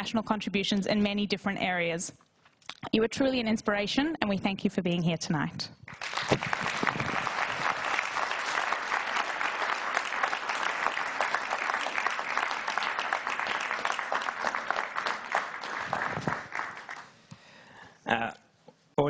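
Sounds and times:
audience applauding: 0:05.9 - 0:17.2.

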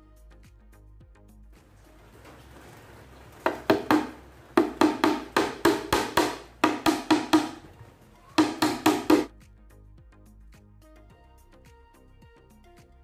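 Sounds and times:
hammer knocking nails into plywood: 0:03.4 - 0:07.8, 0:08.4 - 0:09.3.

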